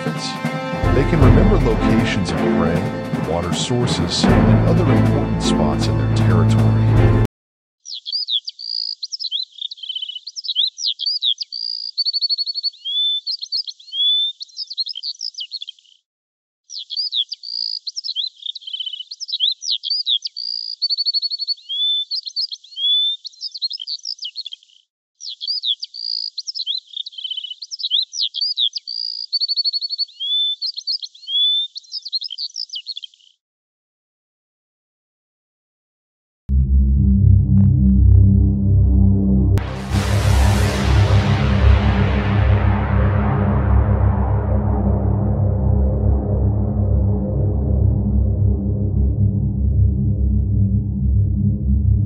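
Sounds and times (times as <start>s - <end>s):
songbird chirping and trilling: 7.8s - 16.0s, 16.7s - 33.4s.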